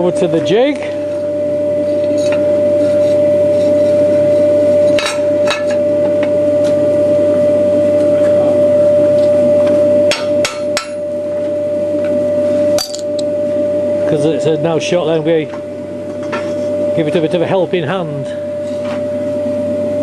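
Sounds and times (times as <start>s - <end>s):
steady hum: 0.0s - 20.0s
hammer striking hot steel: 10.1s - 11.0s.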